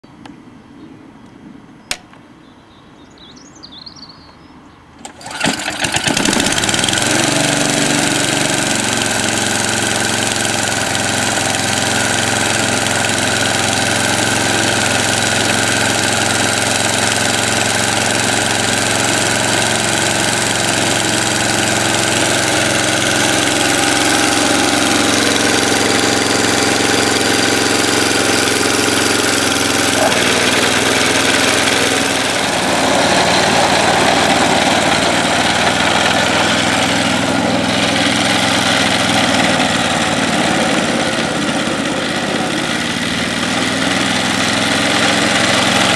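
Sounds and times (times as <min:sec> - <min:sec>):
sharp click: 0:01.9 - 0:02.2
lawn mower engine running: 0:05.0 - 0:45.9.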